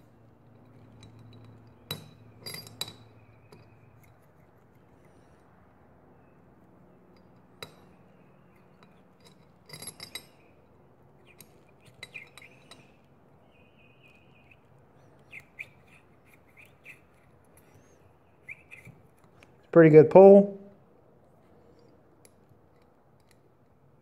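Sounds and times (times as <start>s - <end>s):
faint metallic clicks and scraping: 0.0s - 5.6s, 7.1s - 13.2s, 21.2s - 24.0s.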